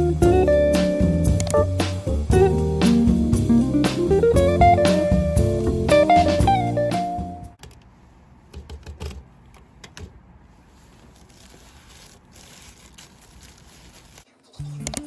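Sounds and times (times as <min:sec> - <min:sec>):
acoustic guitar music: 0:00.0 - 0:07.6.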